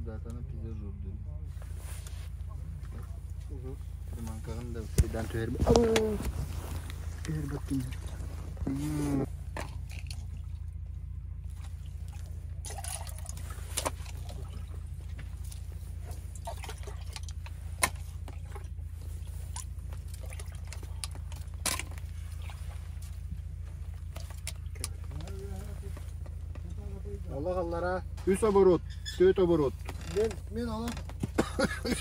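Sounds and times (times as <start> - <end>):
steady low rumble: 0.0 - 32.0
water dripping and trickling: 9.5 - 26.3.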